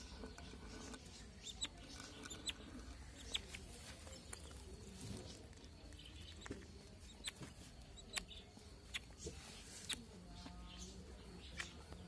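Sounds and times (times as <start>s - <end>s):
duckling peeping: 0.0s - 4.7s, 6.0s - 10.1s.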